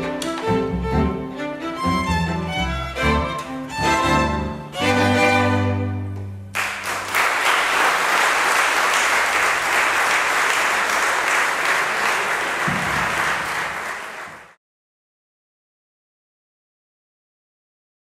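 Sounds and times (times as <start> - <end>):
string quintet chord: 0.0 - 6.3
audience applauding: 6.5 - 14.6.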